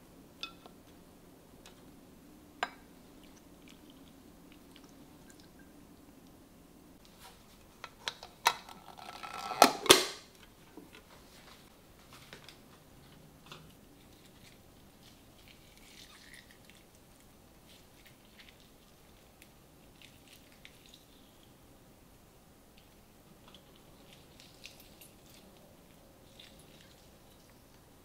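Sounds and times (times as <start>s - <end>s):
chewing: 3.2s - 5.6s, 13.6s - 21.5s, 22.8s - 27.8s.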